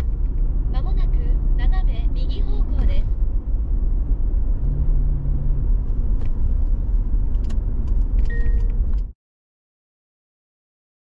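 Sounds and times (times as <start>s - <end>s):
car interior rumble: 0.0s - 9.1s.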